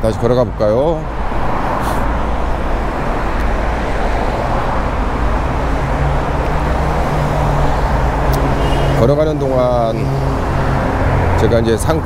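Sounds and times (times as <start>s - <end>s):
cars passing: 0.0s - 12.0s.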